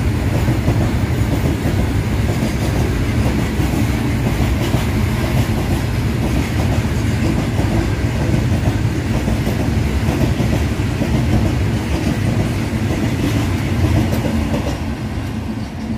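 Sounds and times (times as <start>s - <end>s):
freight train wheels rumbling: 0.0s - 15.9s.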